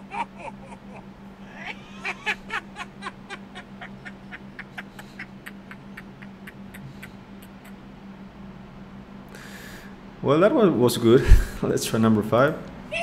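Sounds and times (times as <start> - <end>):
man laughing ho ho: 0.0 - 7.8.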